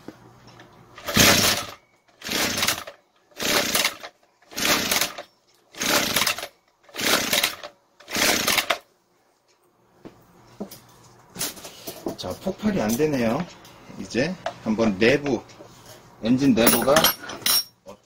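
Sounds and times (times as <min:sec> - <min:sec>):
engine pull cord cranking: 0:01.0 - 0:08.8.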